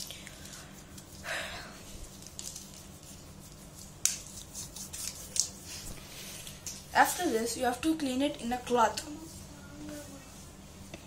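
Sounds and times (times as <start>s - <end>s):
fingers rubbing wet palm: 2.1s - 6.0s.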